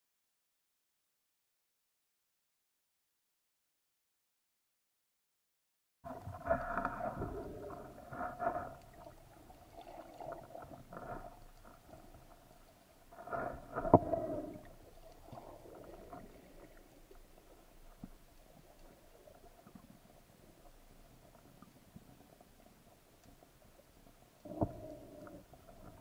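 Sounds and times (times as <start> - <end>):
underwater swishes of water: 6.1 - 26.0.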